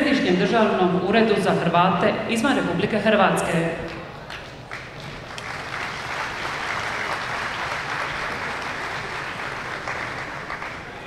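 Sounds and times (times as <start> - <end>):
audience applauding: 4.2 - 11.0.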